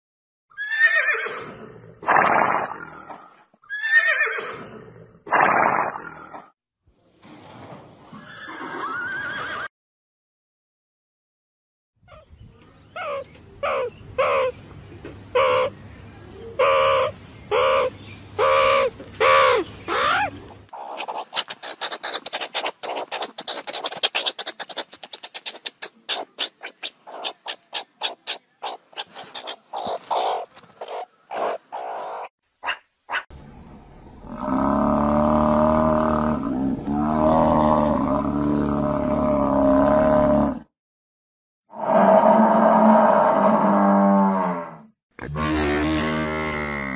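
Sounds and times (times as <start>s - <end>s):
meerkats calling: 12.9s - 14.6s, 15.3s - 15.8s, 16.6s - 33.2s
meerkat clicking chatter: 18.4s - 32.3s.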